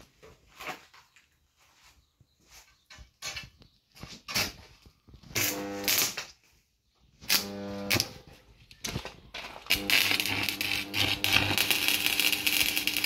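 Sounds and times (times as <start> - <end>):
power tool motor bursts: 5.3 - 6.2, 7.2 - 8.2, 9.7 - 13.0.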